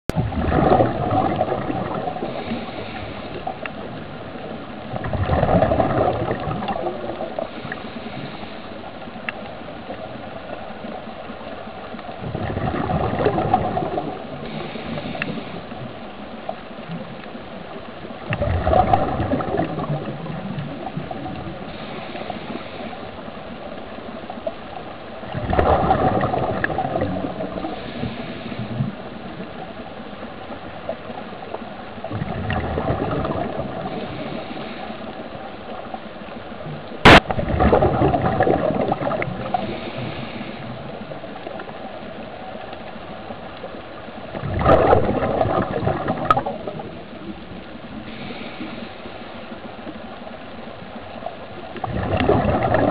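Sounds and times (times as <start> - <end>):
air bubbling underwater: 0.1 - 2.7, 4.9 - 7.4, 12.2 - 14.7, 18.3 - 21.5, 25.3 - 27.9, 32.1 - 34.2, 37.0 - 39.8, 44.3 - 47.0, 51.8 - 52.9
gushes of bubbles: 0.1 - 8.2, 12.1 - 15.9, 18.2 - 22.4, 25.2 - 29.4, 32.0 - 34.9, 37.0 - 41.7, 44.2 - 48.6, 51.4 - 52.9.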